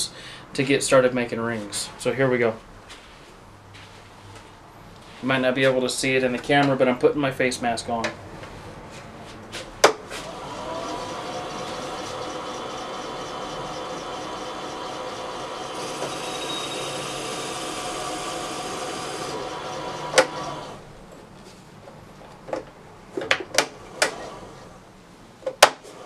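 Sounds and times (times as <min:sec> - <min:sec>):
lathe motor running: 0:10.0 - 0:21.0, 0:23.7 - 0:24.8
drill bit boring into wood: 0:10.2 - 0:20.8.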